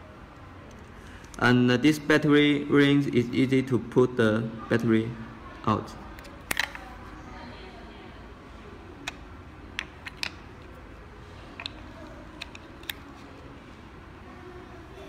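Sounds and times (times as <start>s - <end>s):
batteries clicking into battery bay: 6.2s - 6.9s, 9.8s - 10.5s.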